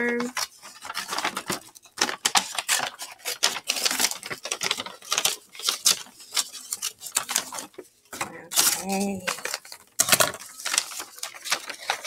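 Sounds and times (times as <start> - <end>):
scissors cutting paper: 0.0 - 7.7, 8.4 - 12.0
paper bag crinkling: 0.0 - 12.0.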